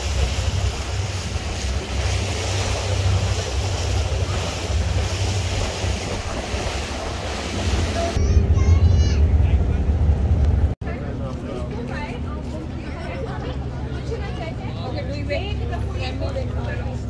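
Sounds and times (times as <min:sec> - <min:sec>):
water rushing past boat: 0:00.0 - 0:10.8
wind buffeting microphone: 0:00.0 - 0:10.8
boat engine drone: 0:00.0 - 0:17.0.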